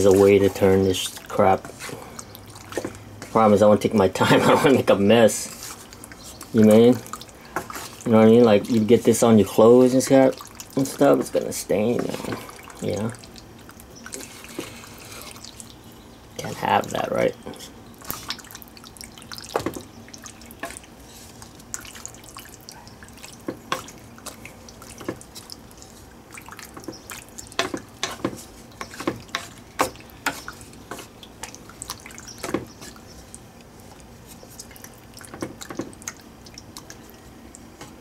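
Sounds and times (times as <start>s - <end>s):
wet squelches of stirred sauce: 0.0s - 38.0s
spatula scraping a pan: 27.5s - 31.2s.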